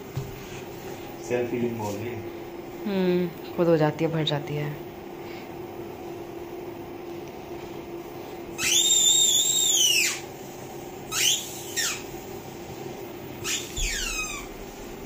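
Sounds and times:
squeaky toy ball squeaking: 8.6s - 10.2s, 11.1s - 12.0s, 13.4s - 14.5s.

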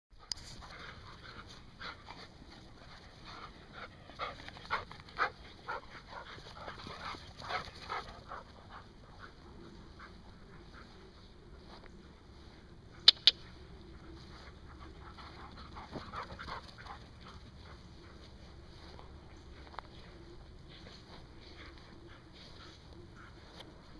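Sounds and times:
sharp clicks: 13.0s - 13.4s.

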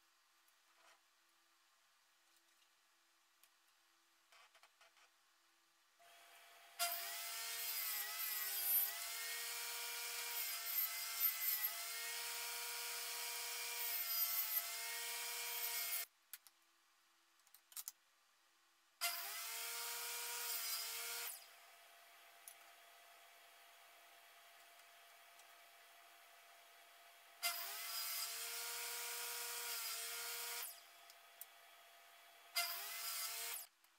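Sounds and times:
table saw cutting wood: 6.0s - 16.1s, 19.0s - 24.5s, 26.0s - 30.9s, 31.6s - 33.7s.

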